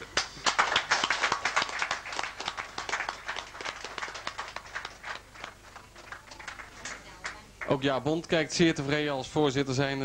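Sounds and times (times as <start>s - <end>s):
small group clapping: 0.0s - 7.9s.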